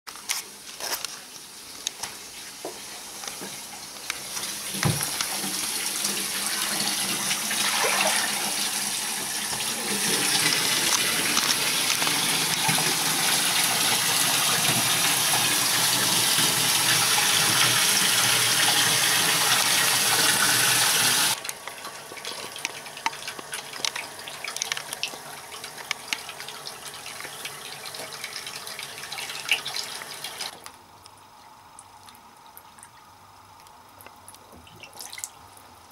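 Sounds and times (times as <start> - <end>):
water running from bathtub tap: 2.2 - 30.6
bathwater sloshing: 4.4 - 13.5
water dripping: 21.3 - 30.6, 31.7 - 35.7.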